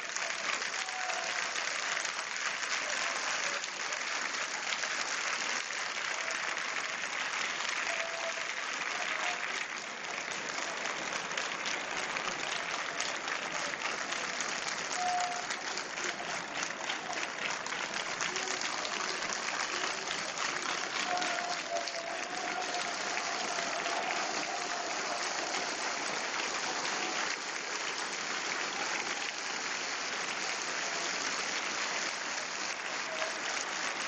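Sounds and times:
crowd clapping: 0.0s - 34.0s
voices calling out: 18.2s - 27.3s.

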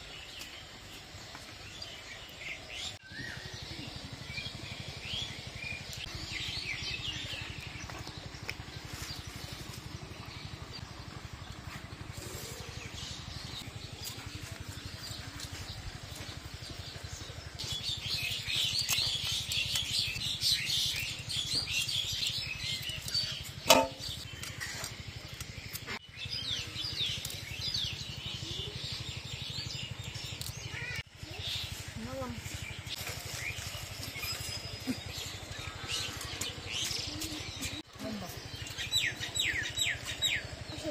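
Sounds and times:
birds chirping: 0.0s - 40.9s.

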